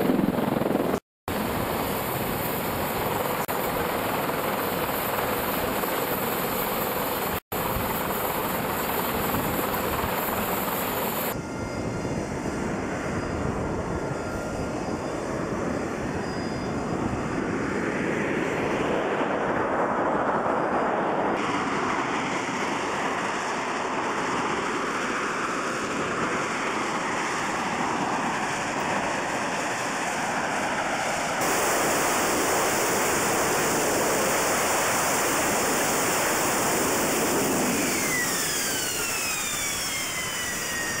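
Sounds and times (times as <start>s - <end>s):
jet engine hissing: 21.4s - 41.0s
whining tones falling in pitch: 36.6s - 41.0s.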